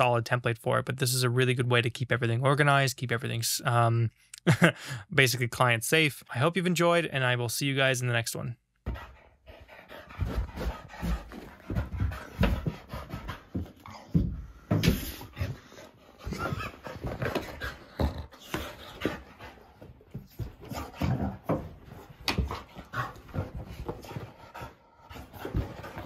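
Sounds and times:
dog panting: 8.8s - 26.0s.

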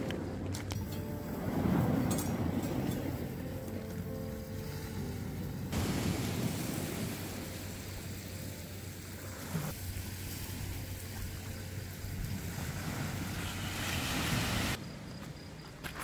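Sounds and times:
wind: 0.0s - 16.0s
surf washing on shore: 5.7s - 14.8s.

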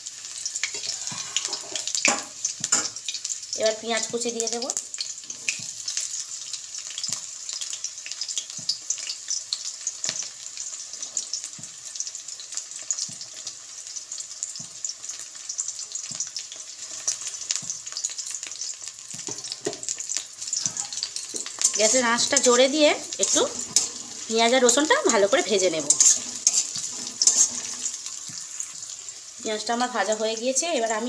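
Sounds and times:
oil sizzling and crackling: 0.0s - 31.0s.

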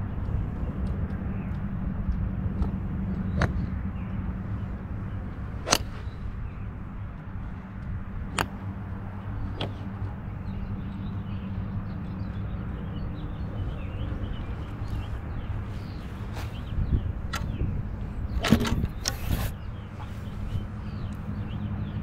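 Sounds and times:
faint sharp clicks: 0.0s - 4.2s
steady low hum: 0.0s - 22.0s
golf club striking ball: 4.4s - 10.0s.

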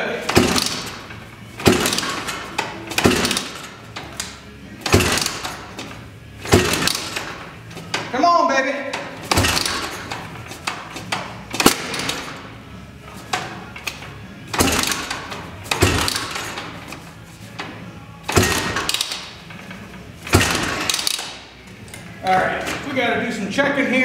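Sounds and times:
engine kick-start clatter: 0.3s - 7.5s, 9.2s - 12.5s, 14.5s - 16.9s, 20.3s - 21.4s.

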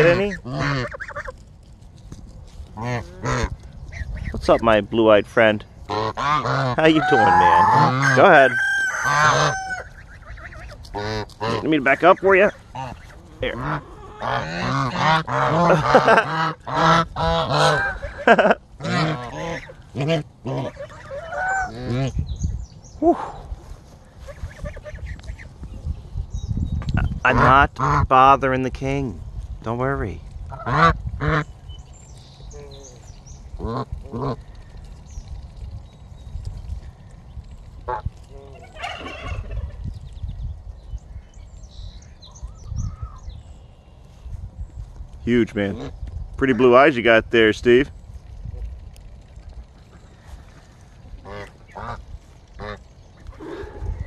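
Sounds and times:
geese honking: 0.0s - 1.4s, 2.7s - 4.7s, 5.8s - 22.2s, 24.2s - 25.5s, 27.3s - 28.2s, 30.5s - 31.6s, 37.8s - 39.8s, 49.9s - 54.0s
steady low rumble: 9.6s - 54.0s.

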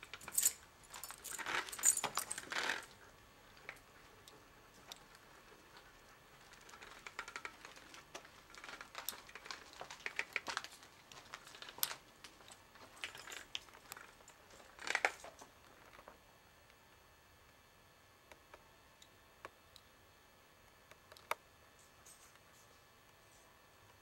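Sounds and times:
footsteps crunching: 7.7s - 15.4s.

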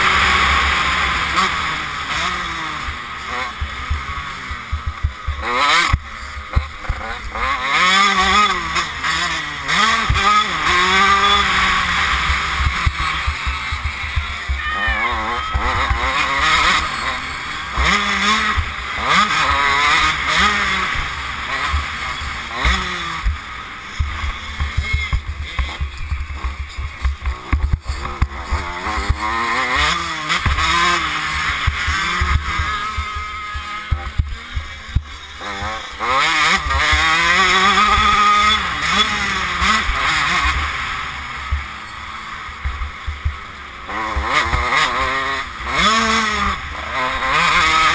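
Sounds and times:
motocross bike engine revving: 0.0s - 47.9s.

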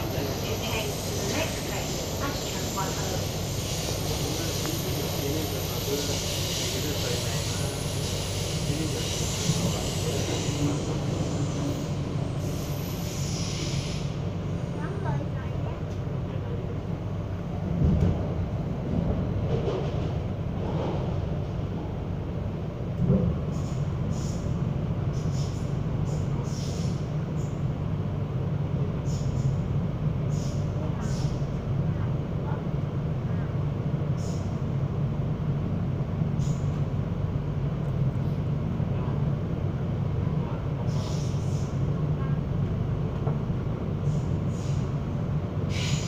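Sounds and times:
metro train interior rumble: 0.0s - 46.0s
short hissing: 12.5s - 14.2s, 30.3s - 31.3s, 44.1s - 44.9s, 45.7s - 46.0s
brief high hisses: 45.7s - 46.0s.

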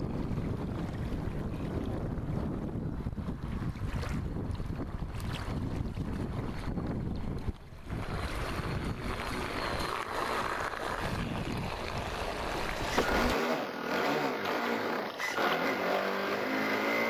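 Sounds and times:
wind buffeting microphone: 0.0s - 13.4s
rushing water: 3.3s - 17.0s
water splashing: 3.5s - 17.0s
rc speedboat running: 7.9s - 17.0s
electric motor whine: 12.3s - 17.0s.

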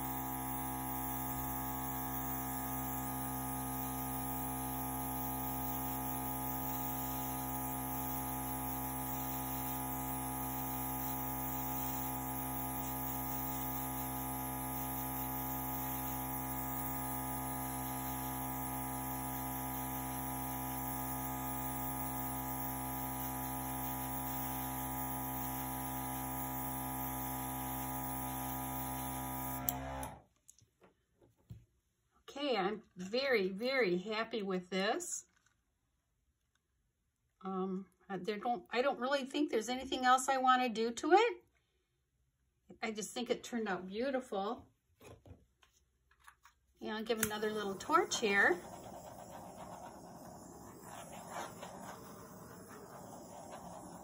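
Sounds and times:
airbrush compressor humming: 0.0s - 30.2s, 47.1s - 54.0s
air hissing from airbrush: 47.3s - 54.0s.

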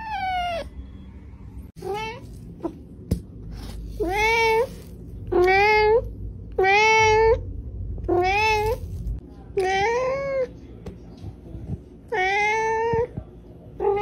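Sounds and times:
cat meowing: 0.0s - 0.7s.

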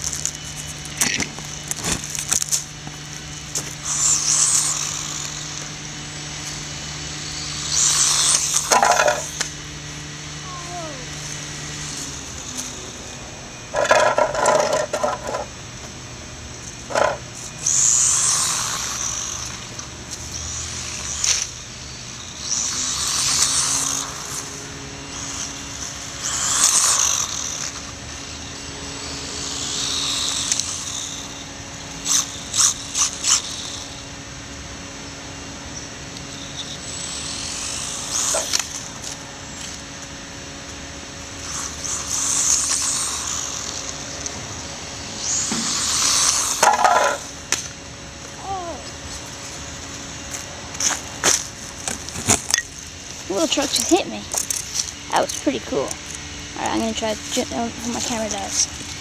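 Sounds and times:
rc truck electric motor whining: 0.0s - 59.0s
toy truck clacking on pavement: 7.7s - 9.5s, 13.7s - 15.5s, 16.9s - 19.9s, 45.6s - 47.7s.

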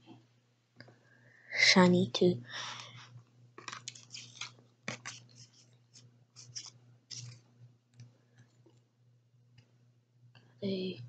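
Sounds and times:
cards clicking and scraping: 3.6s - 7.4s.

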